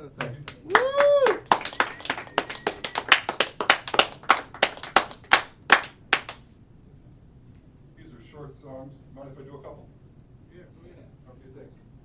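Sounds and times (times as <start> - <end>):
scattered clapping: 0.2 - 6.4.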